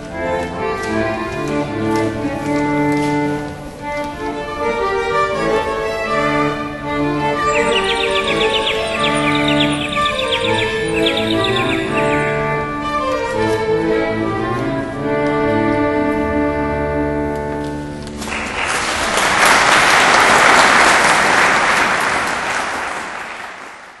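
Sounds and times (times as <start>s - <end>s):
violin: 0.0s - 18.3s
audience applause: 18.2s - 24.0s.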